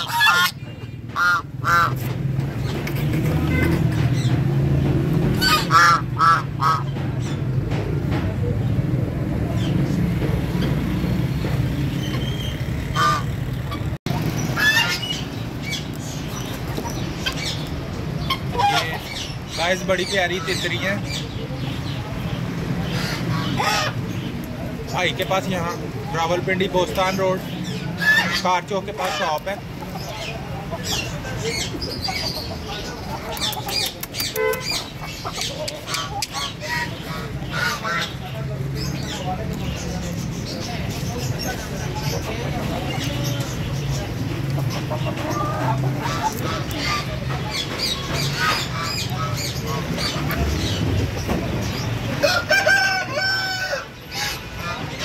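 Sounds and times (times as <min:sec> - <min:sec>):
fowl squawking: 0:00.0 - 0:00.6, 0:01.2 - 0:02.0, 0:05.4 - 0:07.0, 0:12.9 - 0:13.8, 0:14.6 - 0:15.2, 0:18.2 - 0:19.2
birds chirping and squawking: 0:00.0 - 0:55.0
bird honking squawk: 0:05.4 - 0:07.0.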